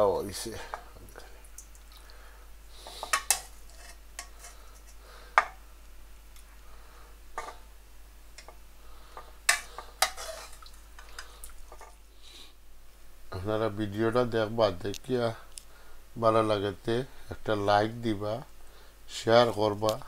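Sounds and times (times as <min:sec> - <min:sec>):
soft stirring and scraping: 0:00.5 - 0:05.6, 0:06.4 - 0:07.7, 0:08.3 - 0:12.6.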